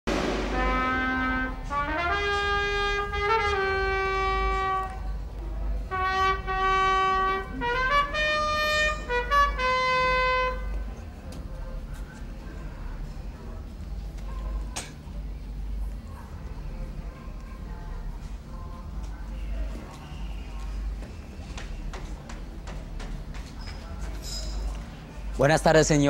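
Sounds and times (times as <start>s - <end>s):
solo trumpet melody: 0.1s - 11.1s.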